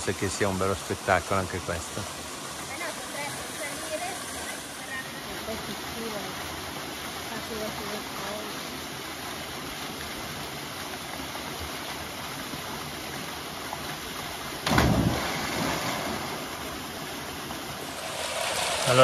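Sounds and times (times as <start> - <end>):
waterfall rushing into pool: 0.0 - 19.0
loud thump: 14.6 - 16.0.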